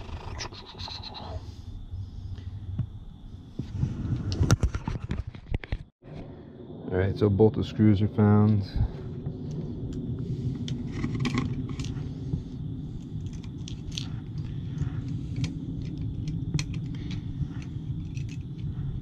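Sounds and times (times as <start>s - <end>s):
steady low rumble: 0.0s - 4.6s, 6.0s - 19.0s.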